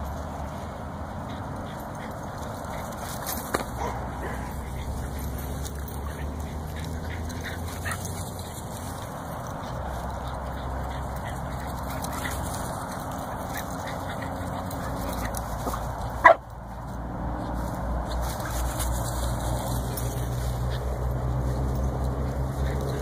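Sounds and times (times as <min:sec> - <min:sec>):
steady background noise: 0:00.0 - 0:23.0
small dog barking: 0:15.6 - 0:16.4.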